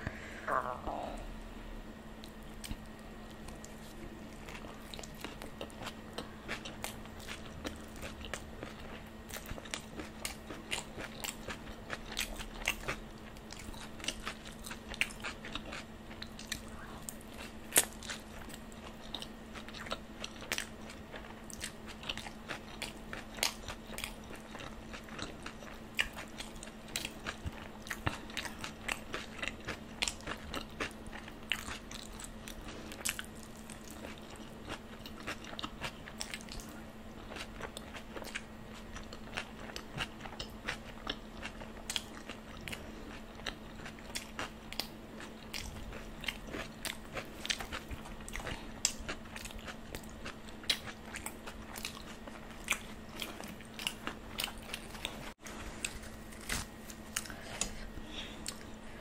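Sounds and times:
low hum: 0.0 - 22.3
wet chewing: 2.2 - 58.8.

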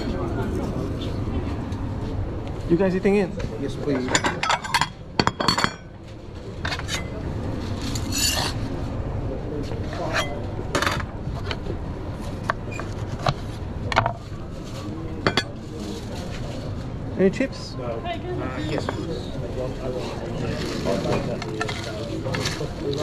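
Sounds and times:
utensils and dishes clinking: 3.8 - 6.0, 6.6 - 8.6, 10.0 - 11.6, 15.2 - 16.0, 18.6 - 19.3, 20.4 - 23.0.

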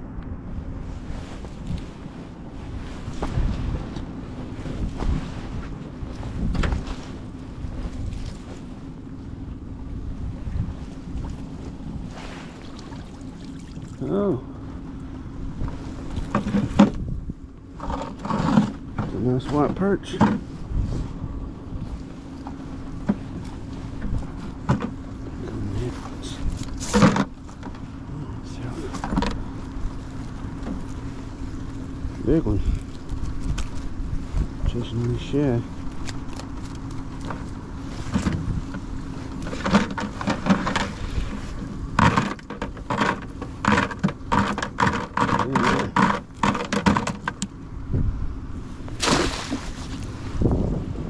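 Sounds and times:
small boat motor humming: 0.0 - 51.0
wind rumble on microphone: 0.0 - 51.0
sharp knocks in boat: 16.2 - 17.1, 48.9 - 50.0
gear rattling and knocking: 35.9 - 47.5.

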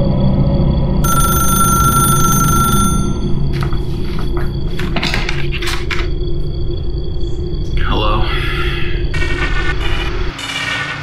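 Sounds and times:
steady low hum: 0.0 - 10.4
telephone bell ringing: 1.0 - 3.4.

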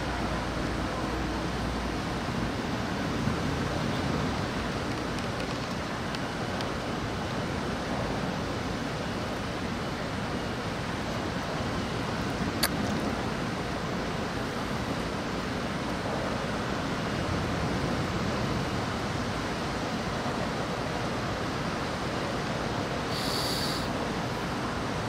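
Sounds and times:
wind and rain rushing: 0.0 - 25.0
brief high hiss: 23.1 - 24.0.

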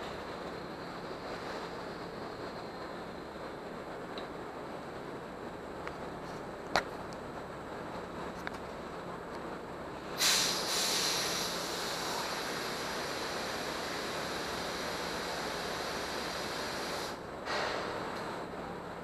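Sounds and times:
air hissing from valve: 10.2 - 17.8.

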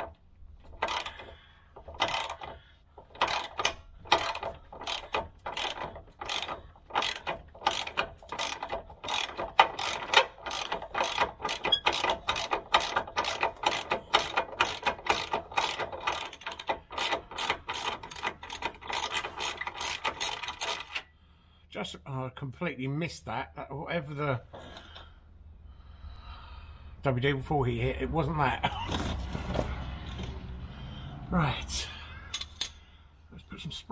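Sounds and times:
socket ratchet clicking: 0.0 - 21.1.

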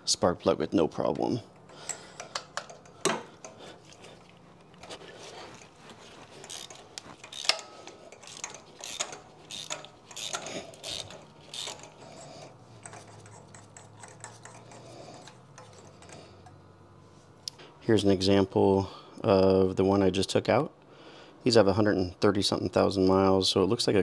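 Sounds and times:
hand ratchet clicking: 1.6 - 4.0, 4.8 - 16.6.

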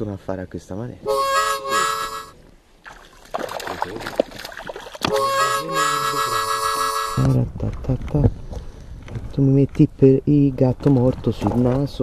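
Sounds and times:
harmonica playing held chords: 1.0 - 2.4, 5.1 - 7.4.

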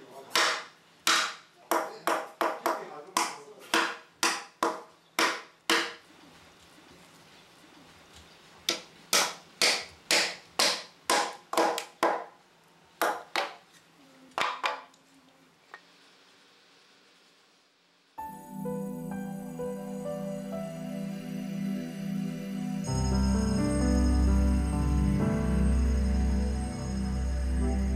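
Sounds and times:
hammer striking wooden wedges: 0.3 - 6.0, 8.7 - 12.3.

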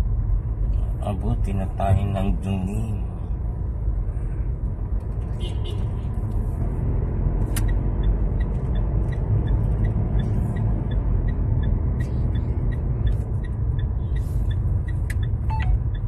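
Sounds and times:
car cabin rumble: 4.5 - 16.0
turn signal ticking: 7.0 - 16.0.

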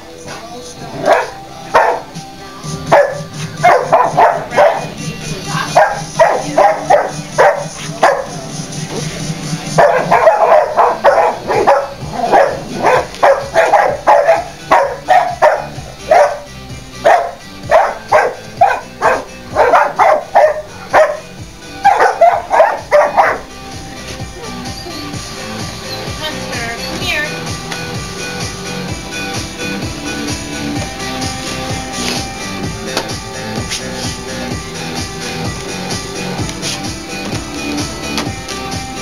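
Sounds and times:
background music: 0.0 - 39.0
dogs barking: 0.8 - 39.0.

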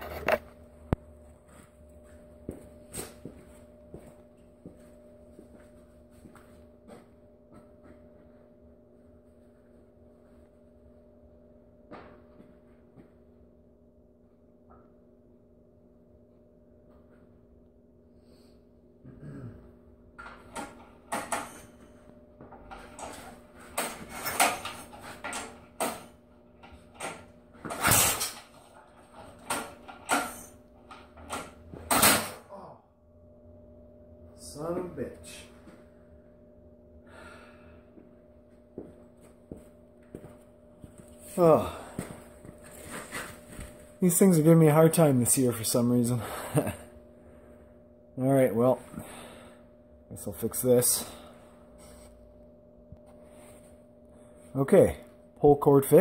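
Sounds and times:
faint steady hum: 0.0 - 56.0
footsteps on concrete floor: 1.2 - 8.6, 38.0 - 44.0
knocks and metal clatter: 22.4 - 32.4.

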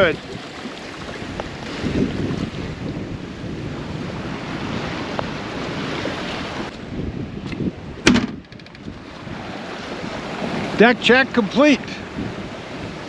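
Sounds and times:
water noise: 0.0 - 13.0
wind rushing over microphone: 0.0 - 13.0
sharp knock: 8.0 - 8.8.

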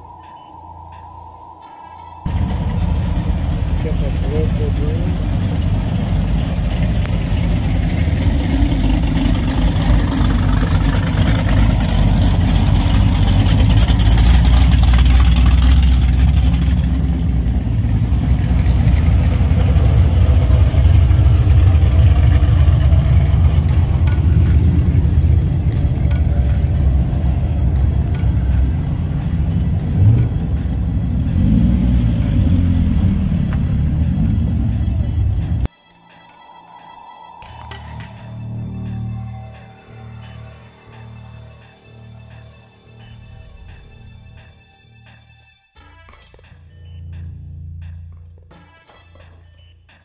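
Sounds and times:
cars driving slowly past: 0.0 - 35.7
engine revving: 2.3 - 35.7.

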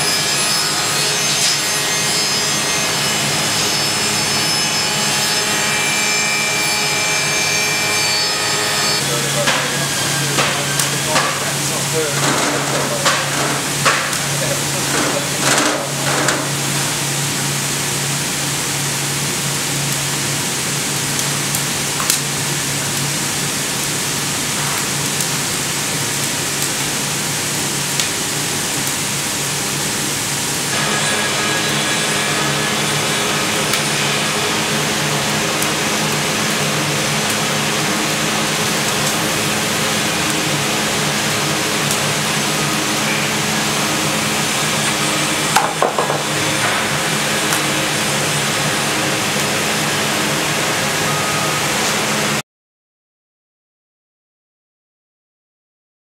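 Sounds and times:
fire roaring inside a barrel: 8.8 - 52.4.

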